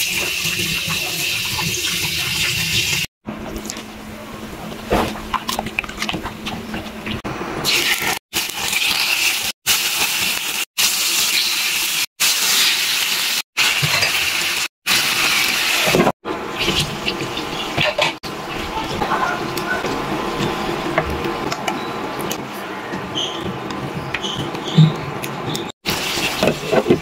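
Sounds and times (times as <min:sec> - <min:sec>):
meat sizzling in hot oil: 0:07.6 - 0:16.0, 0:25.8 - 0:27.0.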